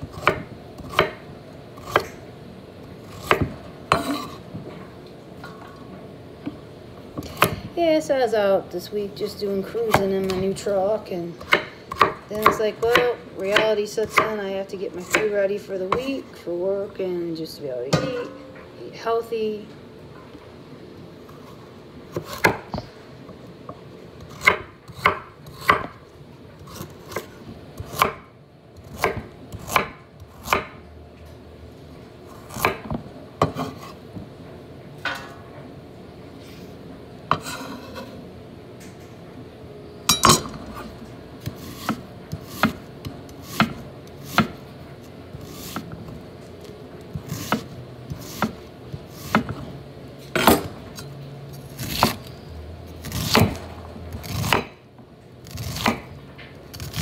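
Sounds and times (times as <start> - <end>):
knife chopping on wooden board: 0.1 - 1.2, 24.3 - 25.9, 26.7 - 28.2, 28.9 - 30.8, 41.4 - 44.6, 47.2 - 49.6, 54.2 - 54.8, 55.6 - 56.1.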